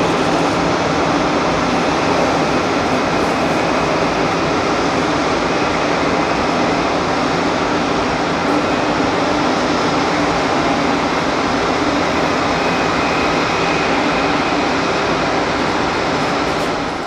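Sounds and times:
jet engines rushing: 0:00.0 - 0:17.0.

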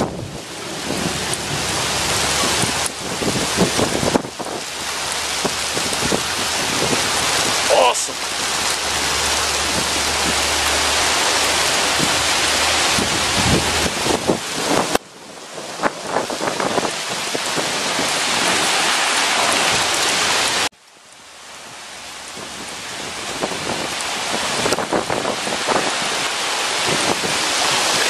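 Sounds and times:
heavy rain hiss: 0:00.0 - 0:28.0
hailstones ticking on concrete: 0:00.2 - 0:15.0.

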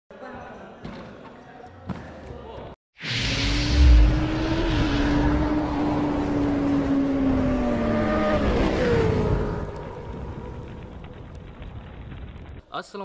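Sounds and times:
motorcycle engine: 0:03.5 - 0:11.4.

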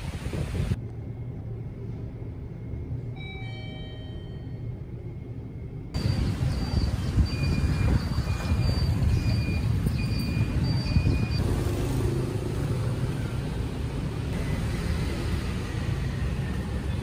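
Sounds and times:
traffic rumble: 0:00.0 - 0:17.0
short high beeps: 0:06.0 - 0:11.4.

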